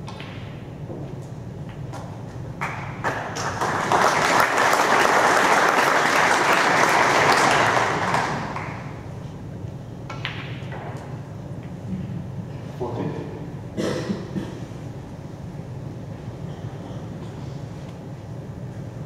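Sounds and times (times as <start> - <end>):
audience applauding: 2.6 - 8.9.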